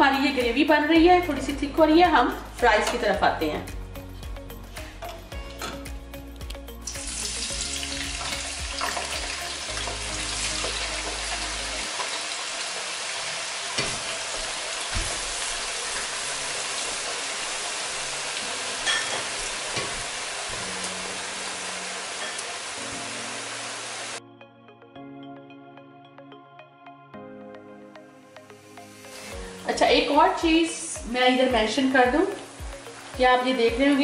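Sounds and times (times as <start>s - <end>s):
fries sizzling in hot oil: 6.8s - 24.2s, 29.0s - 34.0s.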